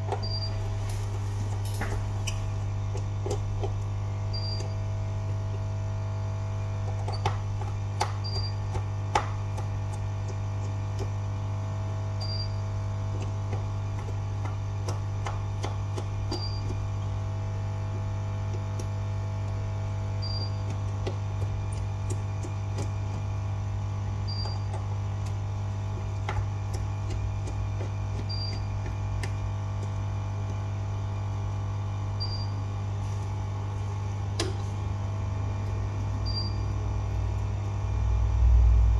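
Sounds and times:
electrical mains hum: 0.0 - 38.9
small tools clicking and tapping: 6.9 - 11.1.

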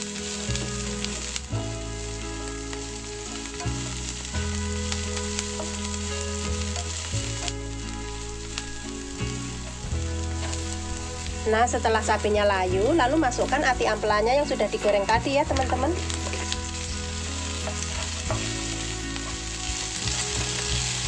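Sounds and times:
onions sizzling in hot oil: 0.0 - 21.0
spatula scraping and tapping wok: 16.0 - 21.0.

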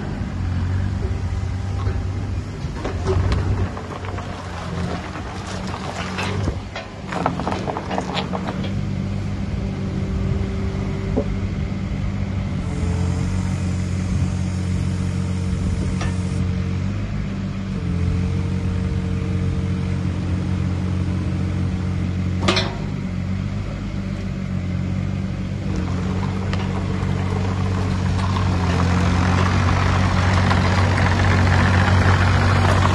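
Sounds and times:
excavator diesel engine running: 0.0 - 32.9
sharp metal clank: 22.4 - 23.0.

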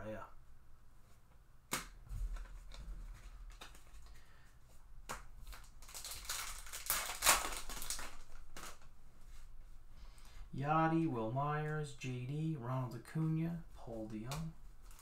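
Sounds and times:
foil wrapper tearing and crinkling: 5.4 - 8.8.

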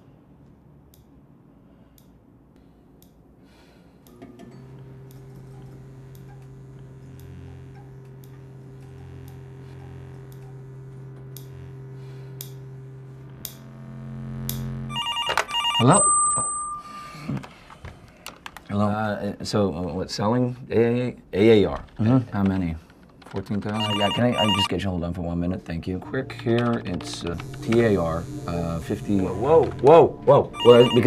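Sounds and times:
fluorescent light humming: 0.0 - 15.0
wall clock ticking: 23.4 - 24.7, 30.6 - 31.0.

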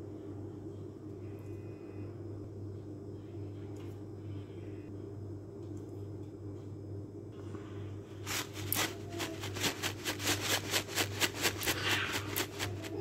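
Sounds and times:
steady low hum: 0.0 - 13.0
spice shaker rattling: 8.2 - 13.0.

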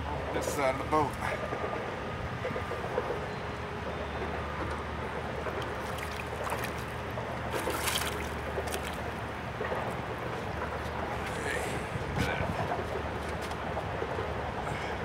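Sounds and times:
low steady hum: 0.0 - 15.0
water splashing against boat: 5.4 - 11.4.

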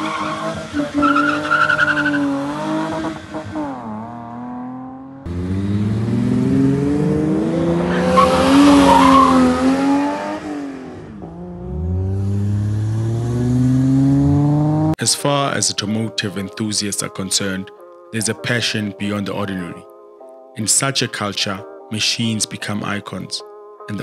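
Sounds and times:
tyres squealing: 0.0 - 2.4, 7.8 - 9.8
car engines revving: 0.0 - 15.0.

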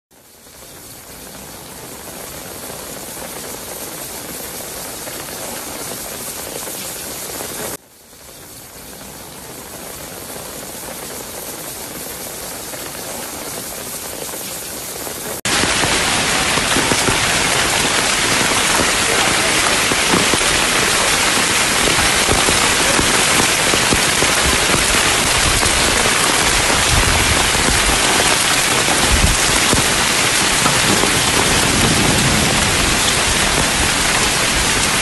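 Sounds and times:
heavy rain falling: 0.1 - 35.0.

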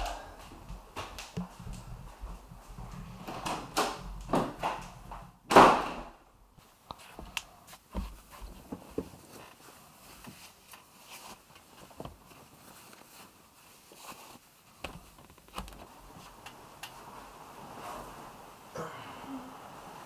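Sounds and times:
cloth rustling: 6.6 - 18.7.

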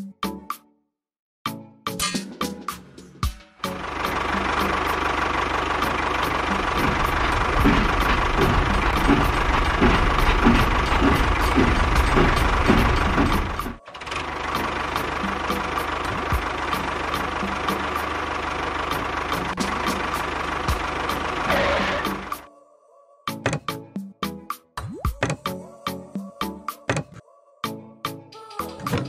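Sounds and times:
tractor engine chugging: 3.6 - 22.5.

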